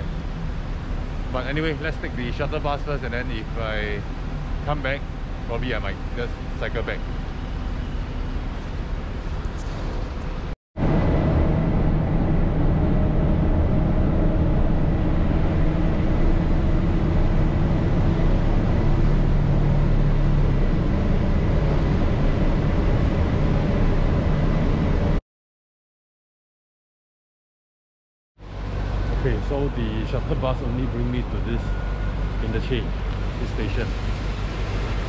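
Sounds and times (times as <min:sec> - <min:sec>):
bus engine and road noise: 0:00.0 - 0:25.2, 0:28.4 - 0:35.0
faint high whine: 0:28.5 - 0:35.0.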